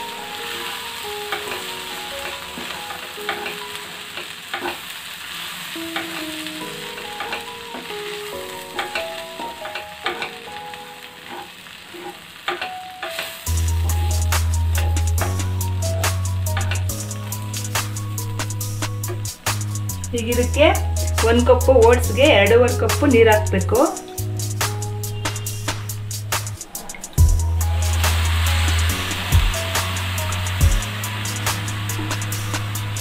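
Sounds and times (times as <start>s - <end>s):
food sizzling in pan: 0.0s - 33.0s
soft background melody: 0.0s - 33.0s
music with heavy drumbeat: 13.5s - 22.2s, 22.9s - 33.0s.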